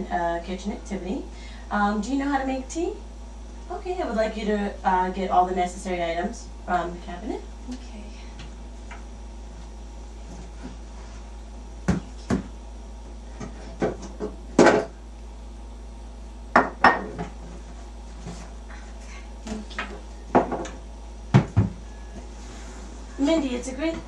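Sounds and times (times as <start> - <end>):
dishes knocking and clinking: 16.6 - 17.4, 19.8 - 21.7.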